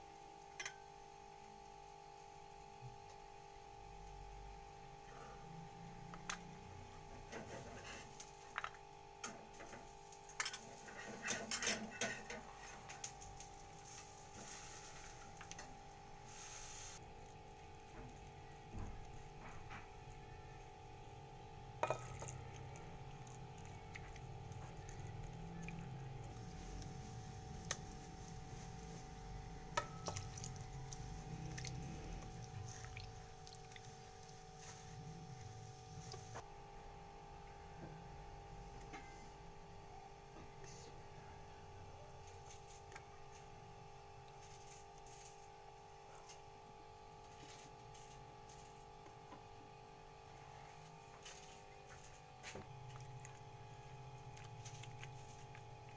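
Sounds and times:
faint steady hum: 0:00.0 - 0:55.9
spatula stirring: 0:21.8 - 0:36.4.

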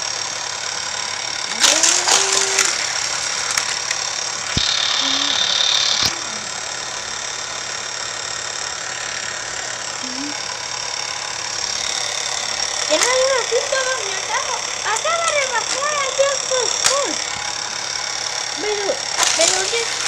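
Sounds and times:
high buzzing whir: 0:00.0 - 0:20.0
toy cars clattering on plastic track: 0:01.5 - 0:04.4, 0:12.8 - 0:17.4, 0:18.6 - 0:20.0
click: 0:03.5 - 0:06.2.

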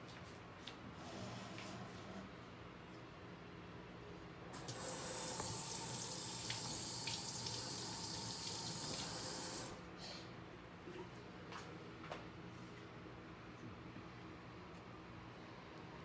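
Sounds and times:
water running from tap: 0:04.6 - 0:09.8.

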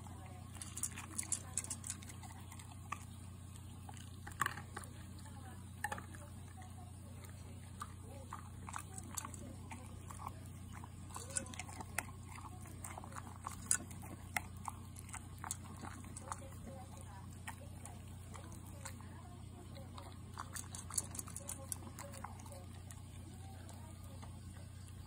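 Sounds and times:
dog chewing and crunching: 0:00.0 - 0:25.0
steady low hum: 0:00.0 - 0:25.0
dog lapping water: 0:05.8 - 0:25.0.

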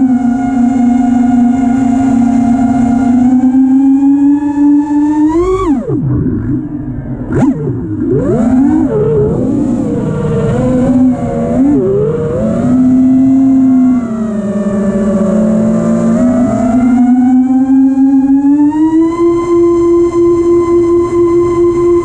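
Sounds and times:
drone motors and propellers whining: 0:00.0 - 0:22.0.

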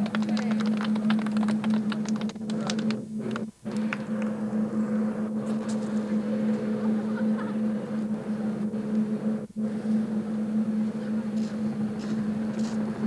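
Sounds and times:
people clapping: 0:00.0 - 0:04.4
helicopter drone: 0:00.0 - 0:13.0.

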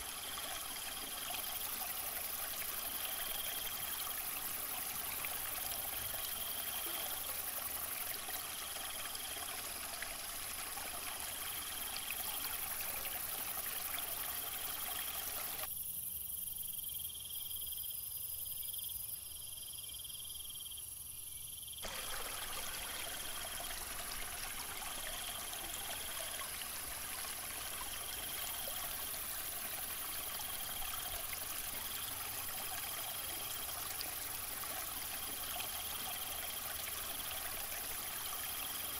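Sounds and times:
waterfall splashing into pool: 0:21.8 - 0:35.2.

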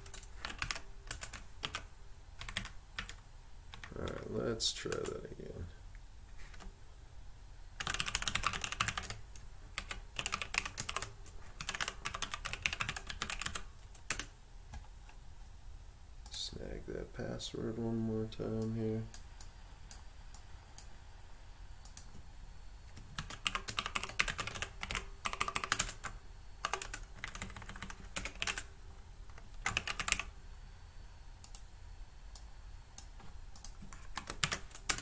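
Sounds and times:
keyboard typing: 0:00.0 - 0:05.2, 0:07.8 - 0:14.3, 0:23.0 - 0:28.7, 0:29.3 - 0:30.3, 0:33.0 - 0:35.0.

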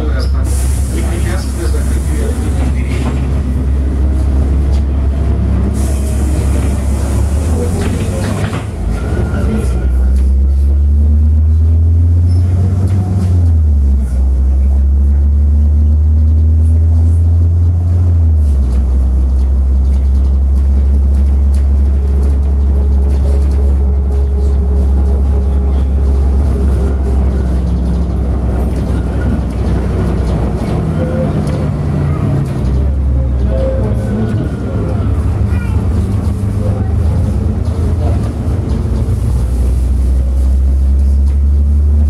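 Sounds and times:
bus engine accelerating: 0:00.0 - 0:42.0.

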